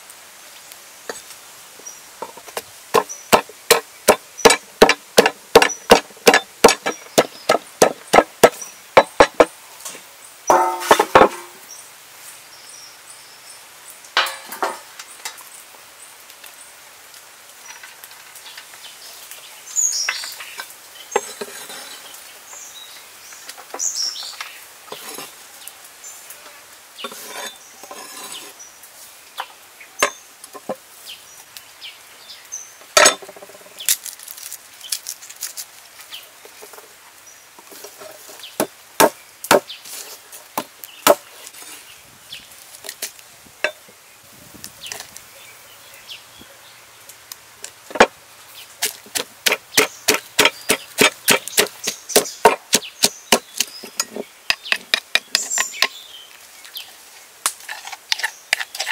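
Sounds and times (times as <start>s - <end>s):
rustles of food handling: 33.7s - 37.0s.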